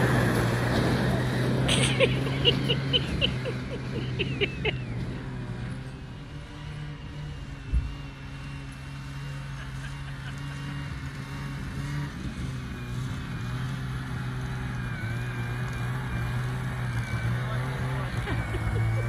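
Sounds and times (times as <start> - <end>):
snowmobile engine running: 0.0 - 19.0.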